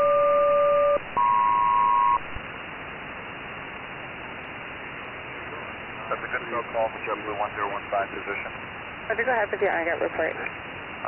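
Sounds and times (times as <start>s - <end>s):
paired radio calling tones: 0.0s - 2.4s
radio hiss: 4.4s - 11.0s.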